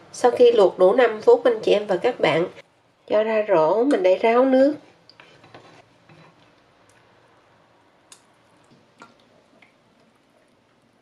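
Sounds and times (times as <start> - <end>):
water dripping: 8.0 - 11.0.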